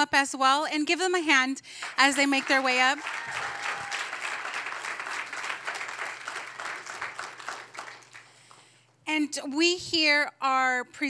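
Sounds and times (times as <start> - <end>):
congregation applauding: 1.7 - 8.8.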